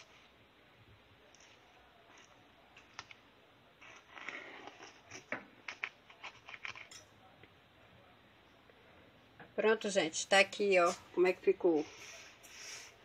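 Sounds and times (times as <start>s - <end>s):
knife cutting cake: 3.8s - 7.1s.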